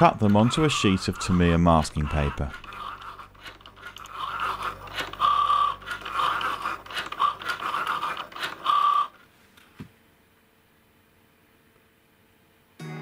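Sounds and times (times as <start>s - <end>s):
cutting machine motors whining: 0.0s - 9.2s.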